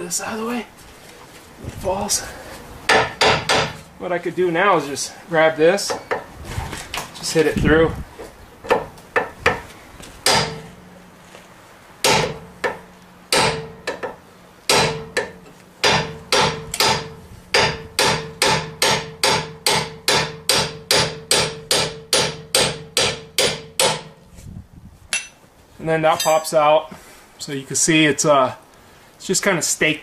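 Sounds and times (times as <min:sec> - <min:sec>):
hammer striking steel: 0:02.9 - 0:03.9, 0:10.2 - 0:10.8, 0:12.0 - 0:24.2.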